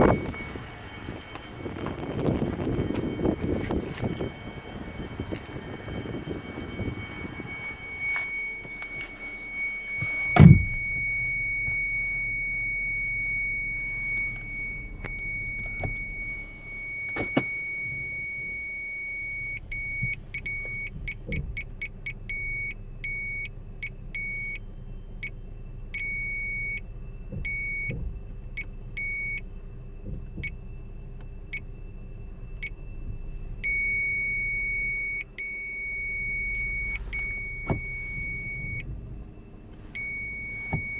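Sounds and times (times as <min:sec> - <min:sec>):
parking sensor warning beeps: 0:00.0 - 0:40.9
heavy thump: 0:01.7 - 0:11.8.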